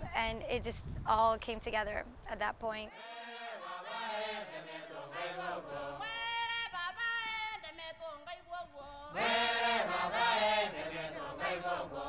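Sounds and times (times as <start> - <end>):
voices singing chant-like melody: 2.9 - 12.0.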